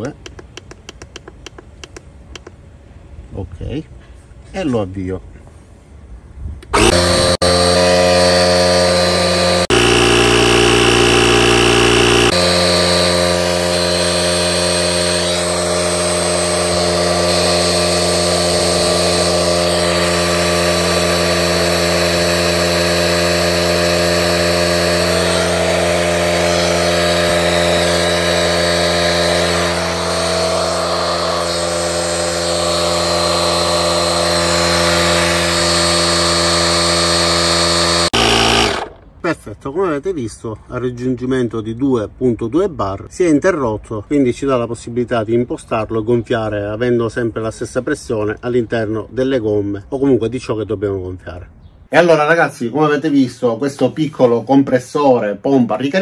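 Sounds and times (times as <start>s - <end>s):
air compressor buzzing: 6.7s - 39.1s.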